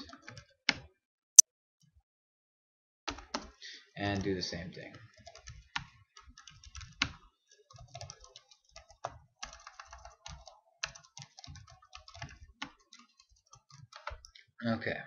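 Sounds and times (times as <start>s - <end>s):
computer keyboard typing: 0.0s - 0.4s, 3.1s - 3.5s, 4.9s - 14.4s.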